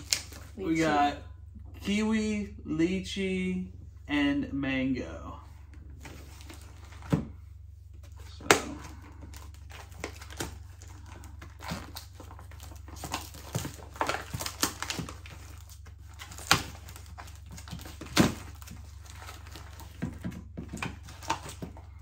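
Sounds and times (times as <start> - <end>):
plastic cups crinkling and clicking: 0.0 - 0.6, 8.1 - 22.0.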